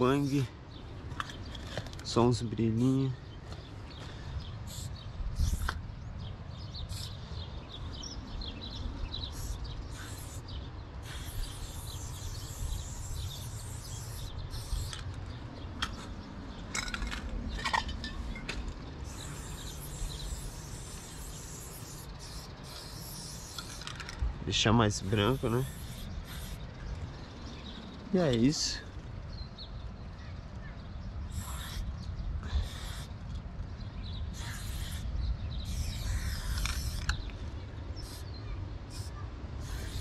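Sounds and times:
spray paint can hissing: 4.7s - 5.8s, 6.9s - 7.2s, 9.2s - 15.2s, 19.0s - 24.2s, 25.1s - 26.7s, 31.3s - 31.9s, 32.6s - 33.2s, 34.3s - 37.4s, 38.0s - 38.3s, 38.9s - 40.0s.

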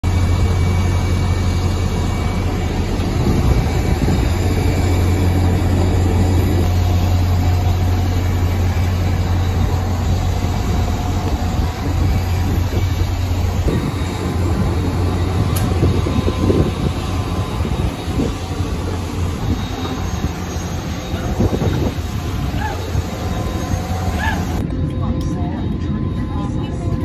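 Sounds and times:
aircraft and machinery drone: 0.0s - 27.0s.

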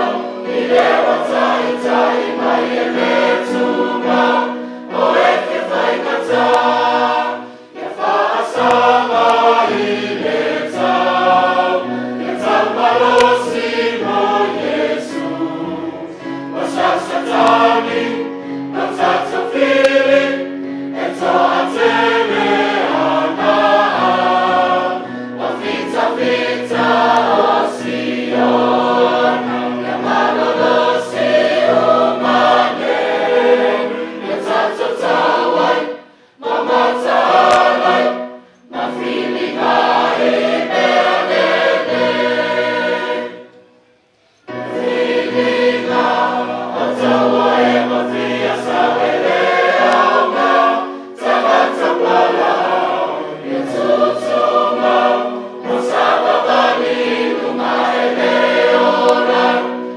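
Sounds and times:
church choir singing a hymn: 0.0s - 59.9s.

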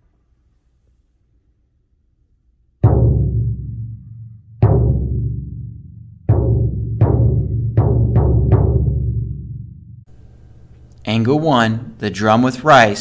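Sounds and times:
floor drum booming: 2.8s - 10.7s.

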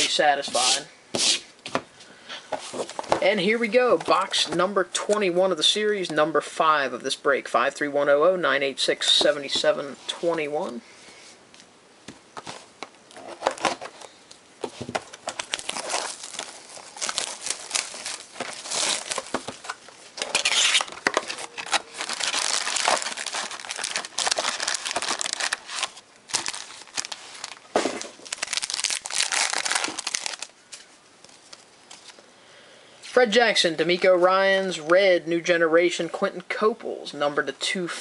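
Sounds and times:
plastic wrapping crinkling and tearing: 15.1s - 32.2s
card packs ripped open: 15.2s - 19.7s, 20.3s - 30.8s.

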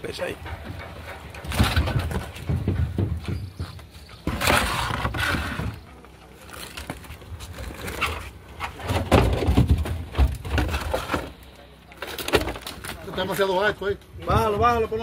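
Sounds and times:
lobster shells scraping and clattering: 4.1s - 13.5s.

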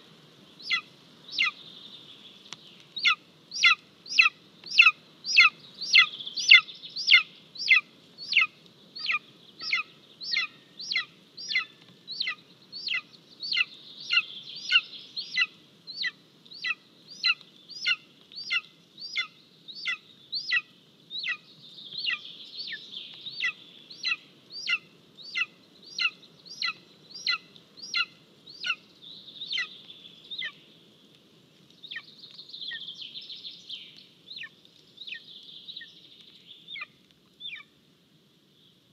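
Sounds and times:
eagle chick calling: 0.6s - 1.6s, 3.0s - 30.6s, 31.9s - 32.1s, 36.7s - 37.7s.

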